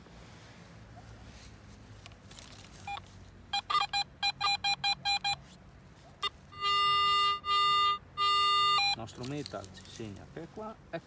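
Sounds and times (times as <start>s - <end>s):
metal detector beeping: 2.8s - 5.5s, 6.2s - 9.3s.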